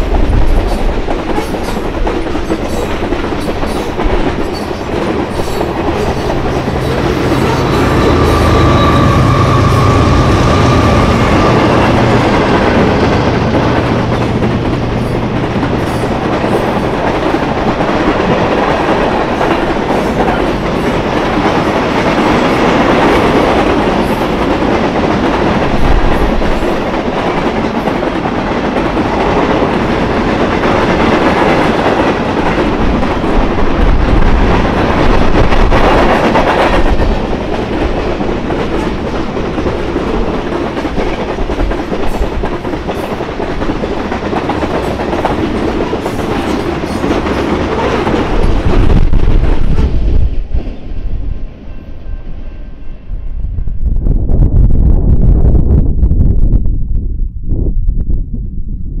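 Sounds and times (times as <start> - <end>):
train wheels clacking: 0.0 - 50.9
diesel locomotive drone: 0.0 - 59.0
freight cars rumbling: 2.1 - 21.5.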